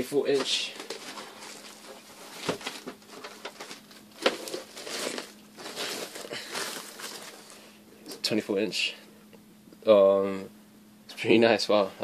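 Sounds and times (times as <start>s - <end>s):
plastic bag rustling and crinkling: 0.0s - 8.3s.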